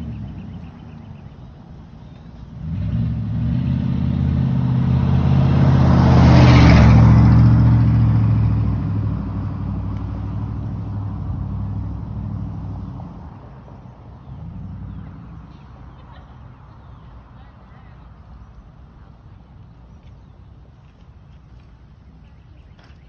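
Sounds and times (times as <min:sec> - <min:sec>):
vehicle engine passing by: 0:00.0 - 0:17.3
road noise rush: 0:00.0 - 0:23.0.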